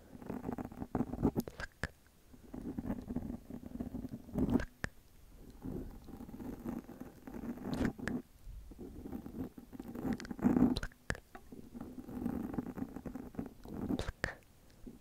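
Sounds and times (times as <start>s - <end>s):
soft wet clicks: 1.4s - 2.1s, 4.0s - 6.2s, 9.8s - 11.5s, 13.6s - 14.9s.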